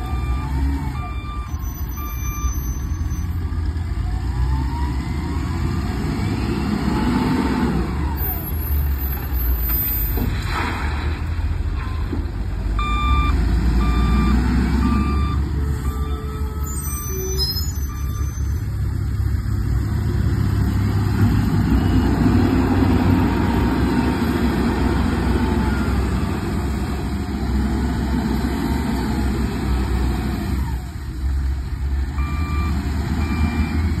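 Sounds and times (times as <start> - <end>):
reversing beeps: 0.0 - 3.4, 11.8 - 12.2, 12.8 - 18.7, 21.3 - 22.5, 32.1 - 34.0
diesel engine under load: 0.0 - 34.0.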